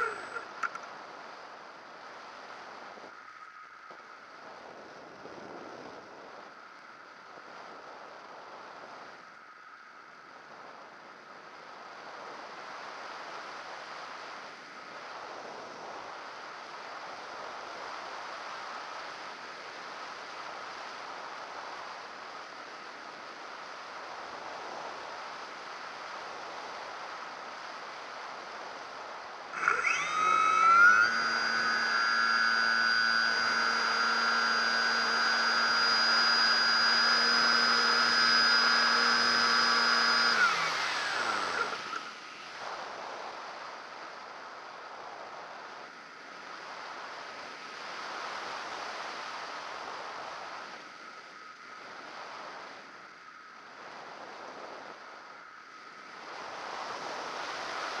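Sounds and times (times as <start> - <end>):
model airplane motor whine: 0.0 - 0.8, 29.5 - 43.0
wind rushing past model airplane: 0.0 - 0.9, 24.0 - 53.2, 53.9 - 58.0.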